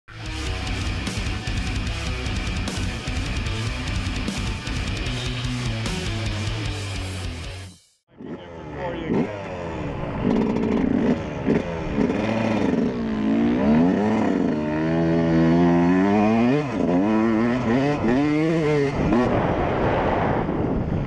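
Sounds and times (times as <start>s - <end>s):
two-stroke motorcycle engine revving: 8.1s - 19.6s.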